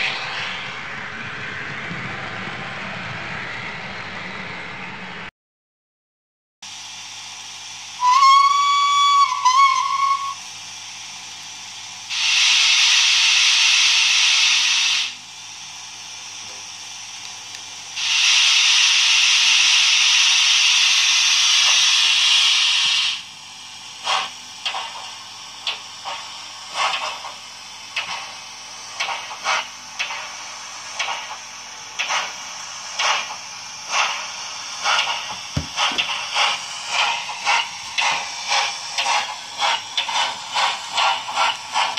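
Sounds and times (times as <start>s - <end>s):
steam hissing: 0.0s - 5.1s, 6.7s - 41.9s
steam whistle blast: 8.0s - 10.4s
locomotive exhaust chuffs: 18.0s - 41.9s.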